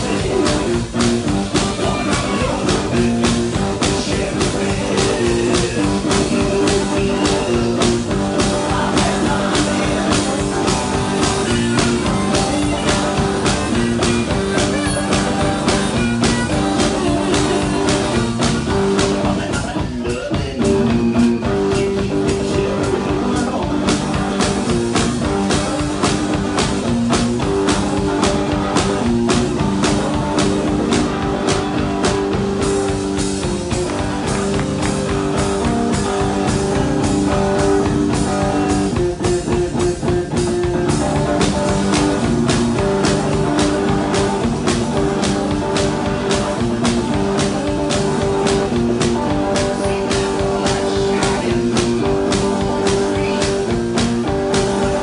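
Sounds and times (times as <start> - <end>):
electric guitar riff: 0.0 - 55.0
kick drum and snare beat: 20.6 - 55.0.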